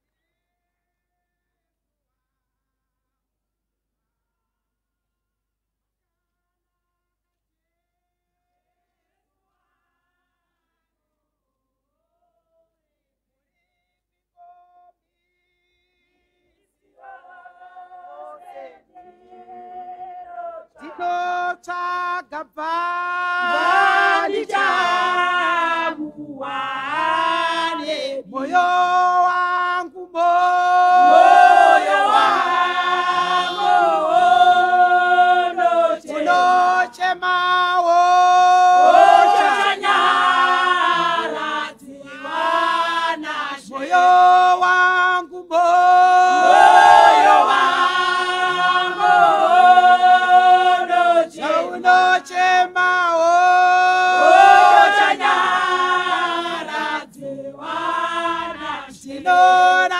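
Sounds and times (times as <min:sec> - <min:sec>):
choir singing a hymn: 0:16.9 - 0:21.6, 0:23.1 - 0:29.3, 0:30.2 - 0:37.1, 0:38.0 - 0:44.7, 0:45.6 - 0:52.8, 0:53.4 - 0:59.9.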